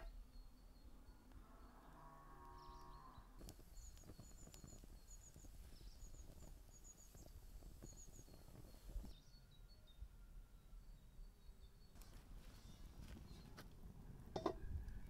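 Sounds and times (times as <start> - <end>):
small birds chirping: 0.0 - 10.0, 10.6 - 13.7
kindling crackling in fire: 3.4 - 9.1.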